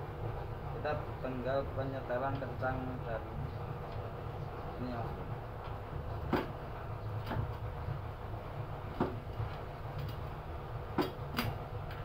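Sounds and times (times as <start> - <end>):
steady low hum: 0.0 - 12.0
sharp clicks of mounting rail: 6.3 - 6.6, 11.0 - 12.0.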